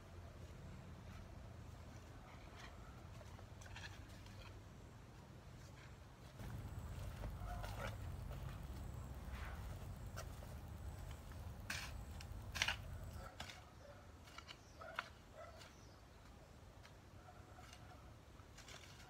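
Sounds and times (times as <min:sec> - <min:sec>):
hoe chopping into soil: 0:06.4 - 0:13.6.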